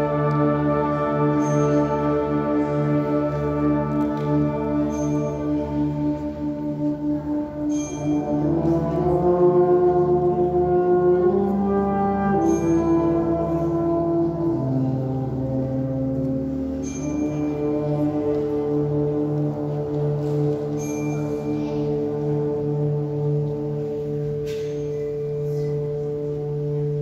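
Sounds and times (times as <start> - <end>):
wind band playing slow chords: 0.0 - 27.0
bell-like stroke ringing: 20.7 - 21.8.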